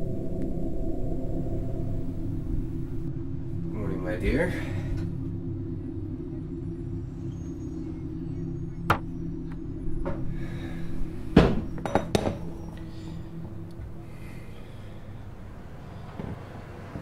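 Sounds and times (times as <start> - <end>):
low steady hum: 0.0 - 17.0
kitchenware knocking and clinking: 11.8 - 12.4.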